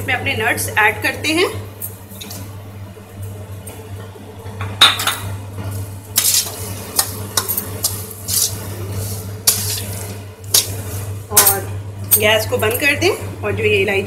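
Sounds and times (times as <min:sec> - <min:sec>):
low steady hum: 0:00.0 - 0:14.0
metal spatula scraping a pan: 0:07.8 - 0:10.7.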